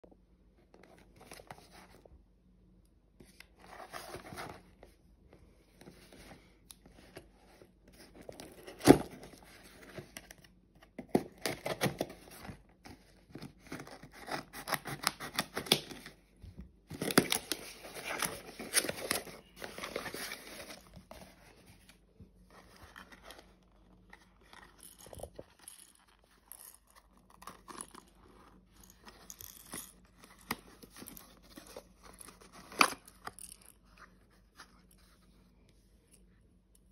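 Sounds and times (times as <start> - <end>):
cardboard scraping and rustling: 17.0 - 24.4.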